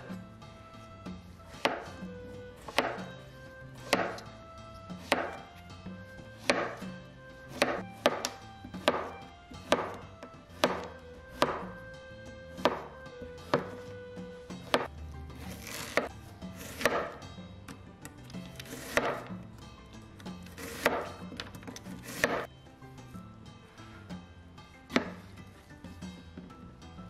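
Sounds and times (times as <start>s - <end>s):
knife chopping on cutting board: 1.5s - 11.8s, 12.5s - 17.3s, 18.5s - 19.4s, 20.4s - 22.5s, 24.9s - 25.4s.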